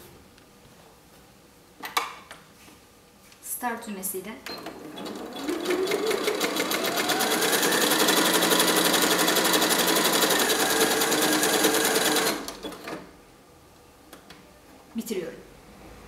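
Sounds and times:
sewing machine stitching: 4.5s - 13.1s.

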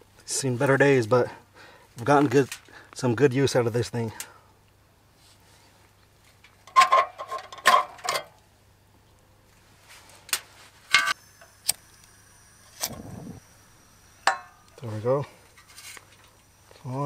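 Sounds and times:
metal plate clanking and rattling: 6.7s - 8.3s
igniter clicks: 11.0s - 17.0s
gas burner whoosh: 11.1s - 17.0s.

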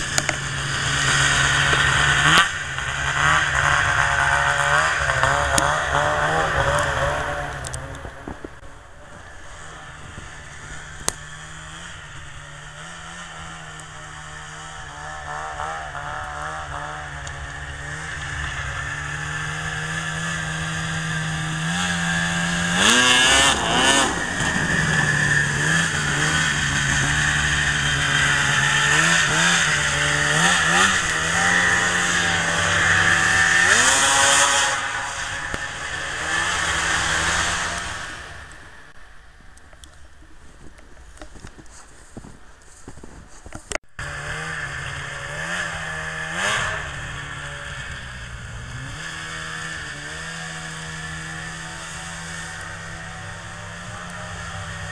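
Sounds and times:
snowmobile engine idling and revving: 0.0s - 54.9s.

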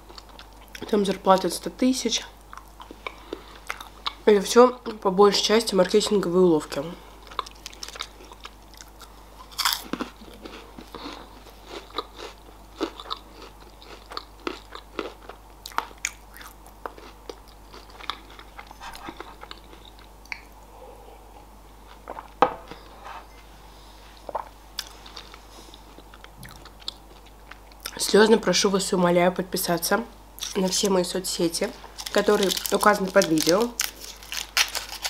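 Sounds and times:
close-miked candy crunching: 7.2s - 20.1s, 32.0s - 35.0s.

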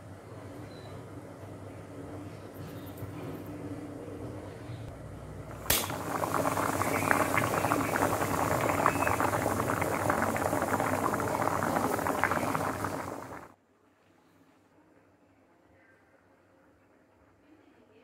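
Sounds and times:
water boiling and bubbling: 5.4s - 13.6s.

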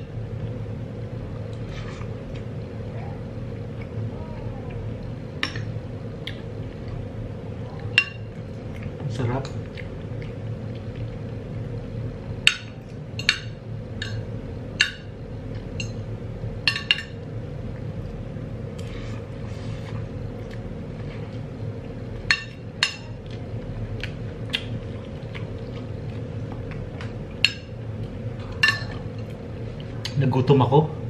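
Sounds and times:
steady low hum: 0.0s - 31.0s
cutlery clinking on ceramic bowl: 28.5s - 29.0s.

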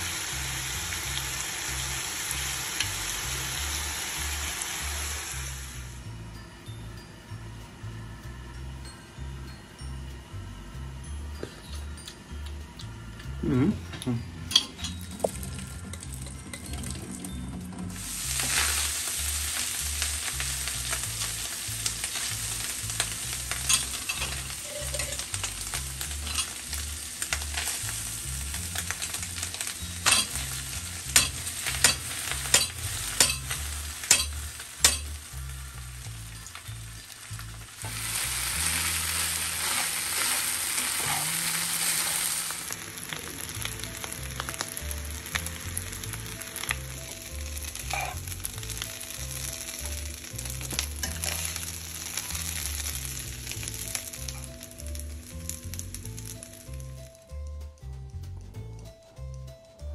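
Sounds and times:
food sizzling in a frying pan: 0.0s - 6.1s, 14.5s - 57.2s.

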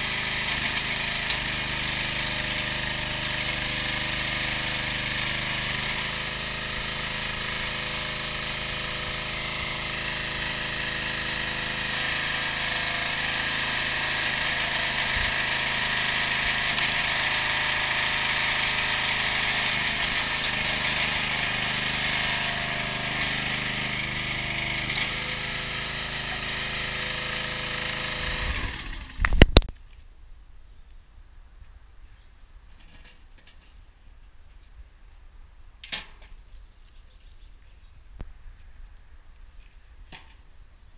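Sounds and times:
petrol engine running: 0.0s - 29.4s.

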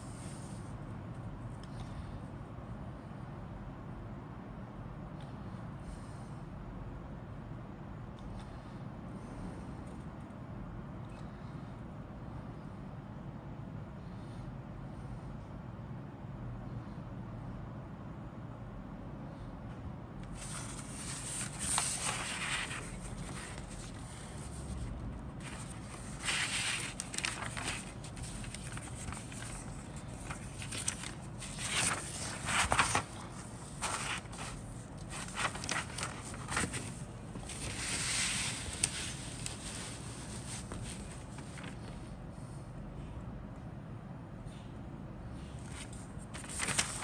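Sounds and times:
paper rustling and crinkling: 20.3s - 42.0s, 45.6s - 47.0s.

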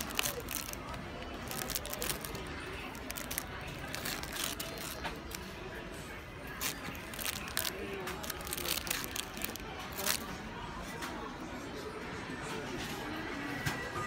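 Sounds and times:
plastic bags crinkling: 0.0s - 5.6s, 6.4s - 10.3s.

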